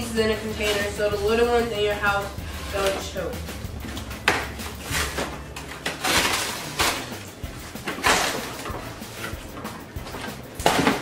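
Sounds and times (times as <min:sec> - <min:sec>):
cardboard rustling and scraping: 0:03.8 - 0:11.0.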